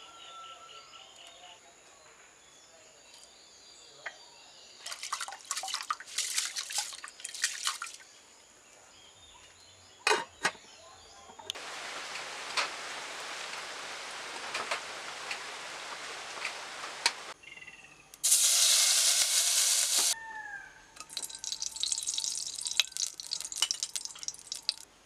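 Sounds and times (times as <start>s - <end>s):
splashes into pot of water: 4.8s - 8.0s, 21.0s - 24.9s
steady hiss with ticks: 11.5s - 17.4s, 21.5s - 24.9s.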